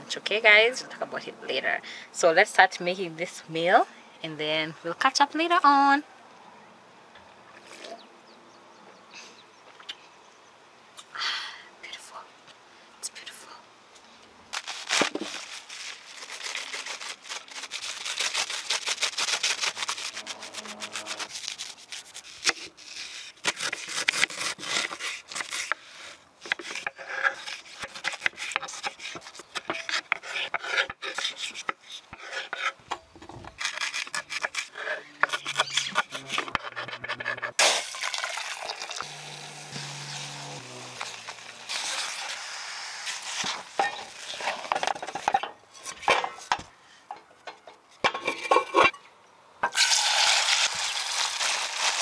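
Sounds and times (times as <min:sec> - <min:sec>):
water running into metal pot: 0:37.6 - 0:39.1.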